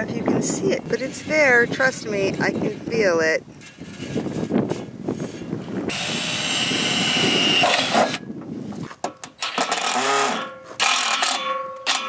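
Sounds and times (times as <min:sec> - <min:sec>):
cordless drill driving screw: 0:05.9 - 0:08.2, 0:09.4 - 0:12.0.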